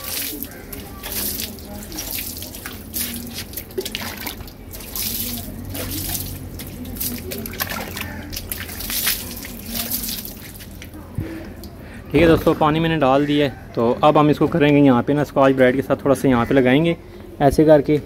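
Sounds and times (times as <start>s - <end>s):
water splashing on metal: 0.0s - 11.8s.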